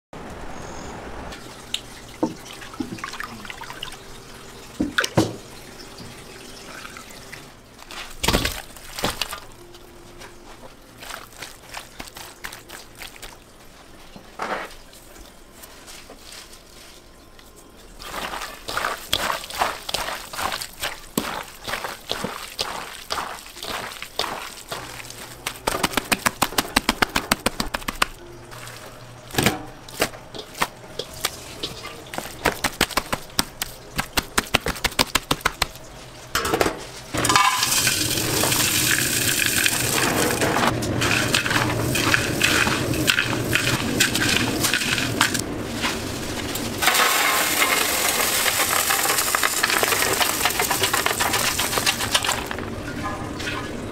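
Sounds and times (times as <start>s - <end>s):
wet squelches of mixing meat: 7.4s - 36.3s
deep-frying sizzle: 37.0s - 53.9s.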